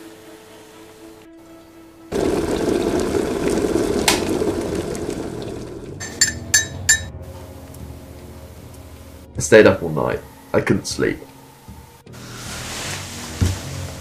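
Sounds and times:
liquid pouring into a china cup: 2.1 - 6.4.

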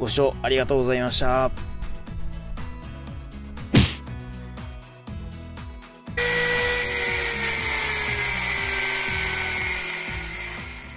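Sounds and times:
background music with low bass: 0.0 - 7.2.

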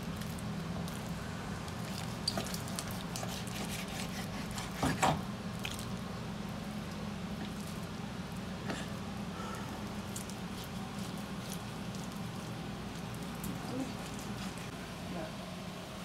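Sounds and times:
knife cutting raw meat: 2.9 - 5.2.

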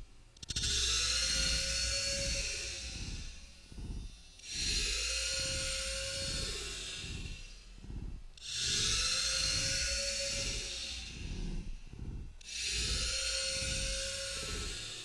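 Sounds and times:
steady whine: 0.0 - 14.8.

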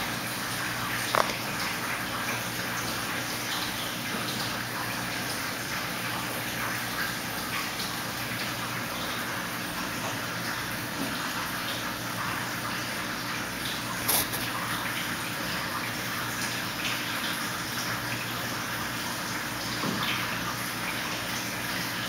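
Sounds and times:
running water rushing: 0.0 - 22.0.

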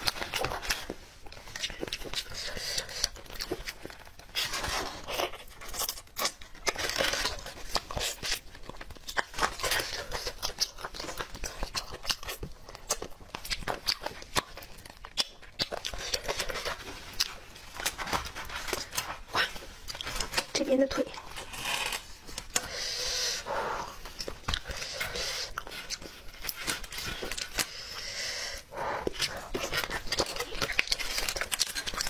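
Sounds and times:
foil and gloves crinkling: 0.0 - 22.6, 29.2 - 32.0
chewing: 0.0 - 32.0
chicken skin and meat ripping: 29.2 - 32.0.

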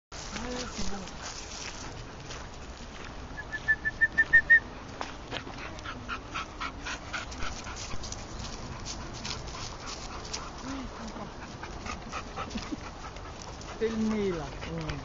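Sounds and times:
footsteps on gravel: 0.1 - 5.7.

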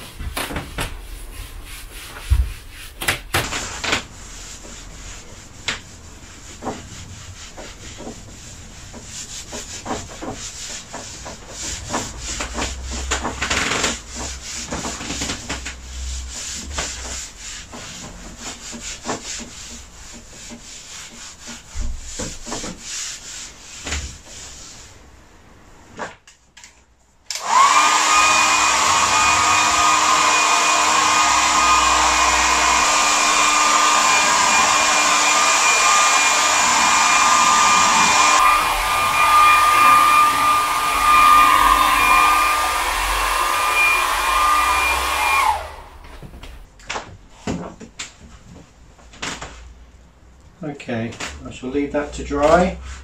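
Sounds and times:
hand rubbing a painted board: 0.0 - 25.3, 28.5 - 46.7
hair dryer whining: 27.3 - 46.6.

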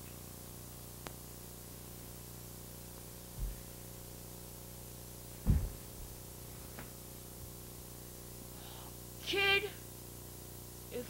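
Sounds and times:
camcorder hiss and hum: 0.0 - 11.0
dull low thumps: 5.4 - 6.2.

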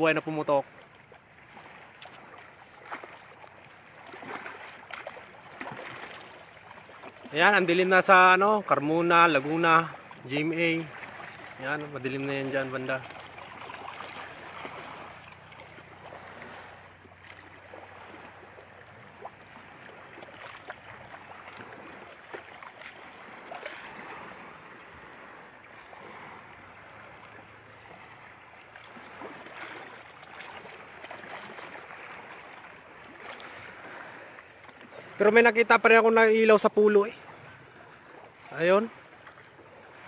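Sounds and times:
small waves lapping at shore: 0.0 - 40.0.

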